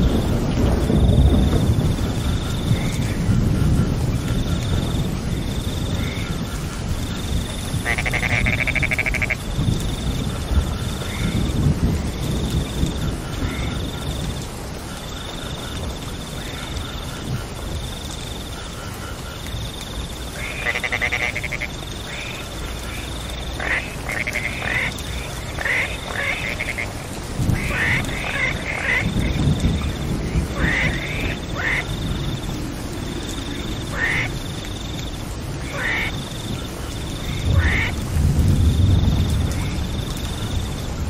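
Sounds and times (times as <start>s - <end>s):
frogs croaking: 0.0s - 41.0s
rain falling: 0.0s - 41.0s.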